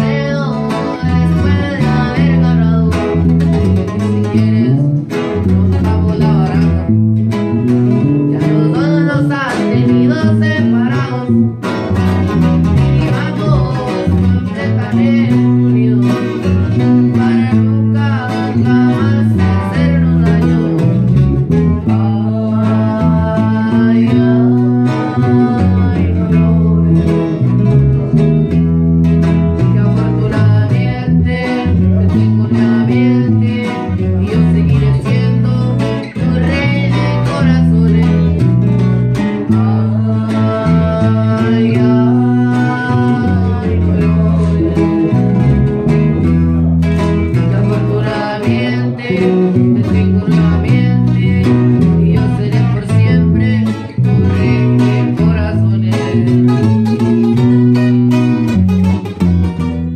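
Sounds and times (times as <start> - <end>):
man singing: 0.0 - 28.2, 29.1 - 58.6
electric bass line: 0.0 - 59.9
strummed acoustic guitar: 0.0 - 59.9.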